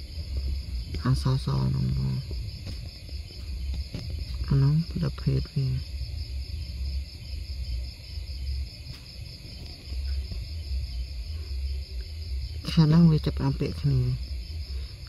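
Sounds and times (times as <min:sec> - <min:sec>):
crickets trilling: 0:00.0 - 0:15.0
low rumble: 0:00.0 - 0:15.0.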